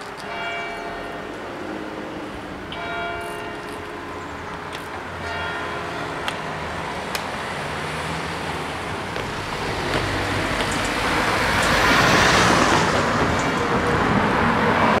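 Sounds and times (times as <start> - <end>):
vehicles driving past: 0.0 - 15.0.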